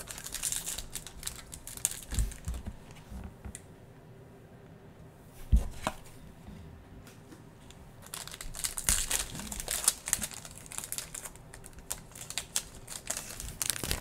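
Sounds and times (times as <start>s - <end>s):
foil wrappers crinkling: 0.0s - 2.8s, 8.0s - 14.0s.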